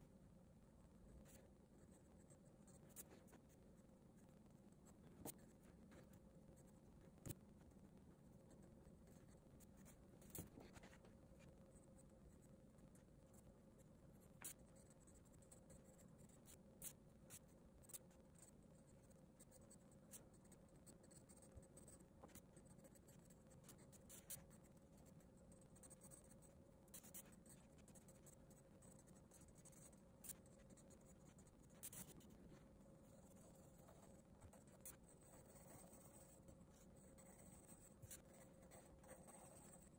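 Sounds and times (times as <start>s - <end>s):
low steady hum: 0.0s - 39.9s
pencil scratching on paper: 2.2s - 3.6s, 8.5s - 11.6s, 19.5s - 25.1s, 25.8s - 39.9s
pencil ticks against paper: 14.3s - 32.4s, 33.2s - 39.9s.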